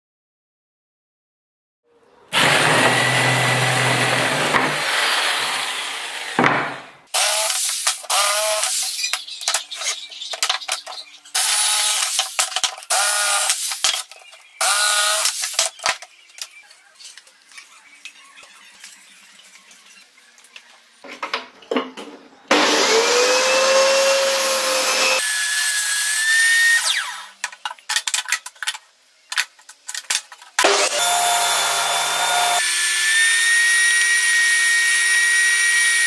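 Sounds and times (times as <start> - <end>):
jigsaw cutting wood: 2.3 - 8.8, 11.4 - 12.2, 12.9 - 13.7, 14.6 - 15.5, 22.5 - 27.4, 30.6 - 36.0.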